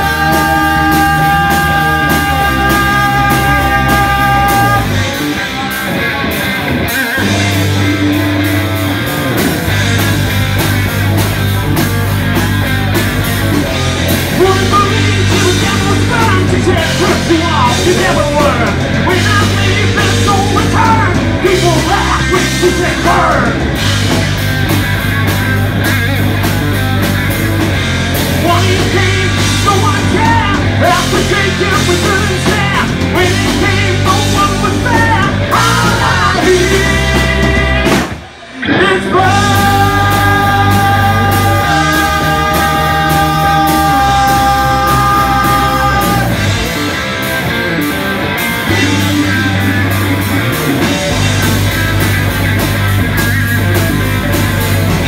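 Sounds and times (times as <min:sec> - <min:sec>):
person singing: 0:00.0 - 0:05.4, 0:14.3 - 0:23.6, 0:28.4 - 0:46.8
rock band playing live: 0:00.0 - 0:55.0.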